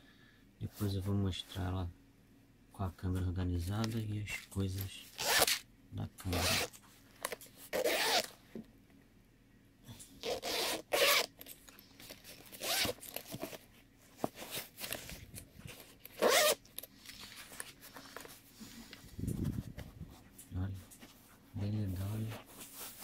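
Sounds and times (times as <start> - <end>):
zipper rasping: 5.2 - 5.6, 6.3 - 6.7, 7.7 - 8.3, 10.2 - 11.4, 12.4 - 13.5, 16.2 - 16.6
fabric rubbing: 7.7 - 8.3, 12.3 - 13.6, 16.2 - 16.6, 21.1 - 23.0.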